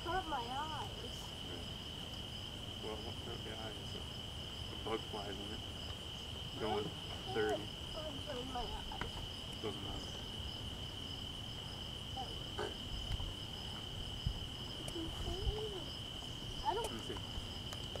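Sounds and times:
insects high-pitched drone: 0:00.0 - 0:18.0.

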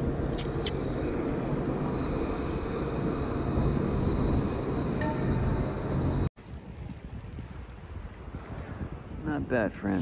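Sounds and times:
street traffic rumble: 0:00.0 - 0:06.3
tram running: 0:00.0 - 0:06.3.

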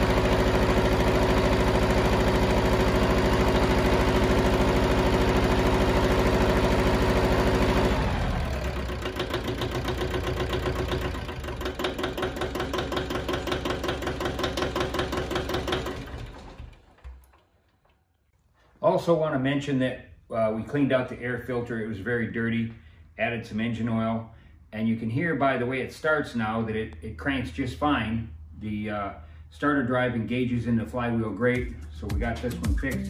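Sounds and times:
tractor diesel engine running: 0:00.0 - 0:17.4.

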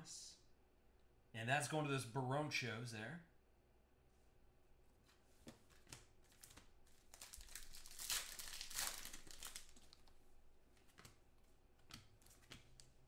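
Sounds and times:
foil wrapper crinkling and tearing: 0:06.3 - 0:10.1.

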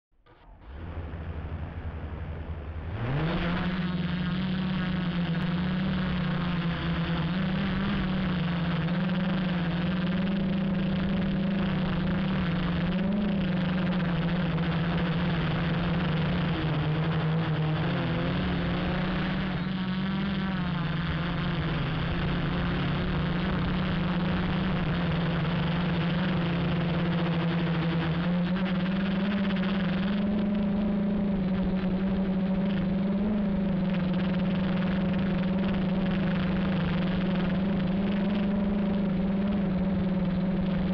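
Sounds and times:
quadcopter motors buzzing: 0:03.1 - 0:40.9.

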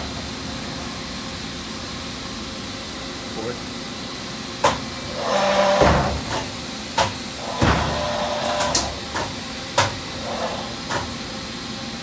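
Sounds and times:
sharp knocks and clicks: 0:08.6 - 0:10.0.

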